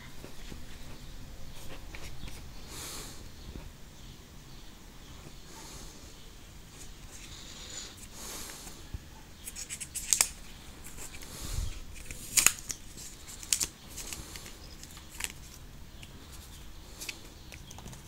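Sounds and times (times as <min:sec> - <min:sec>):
paper rustling: 0:09.4 - 0:15.6.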